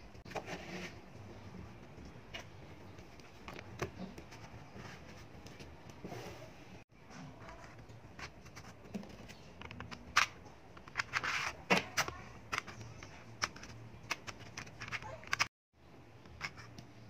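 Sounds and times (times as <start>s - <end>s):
card scraping and rustling: 7.5s - 15.5s.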